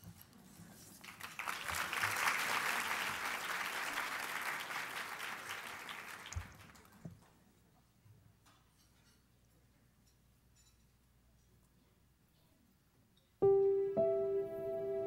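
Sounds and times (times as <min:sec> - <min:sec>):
audience applauding: 0:01.0 - 0:07.0.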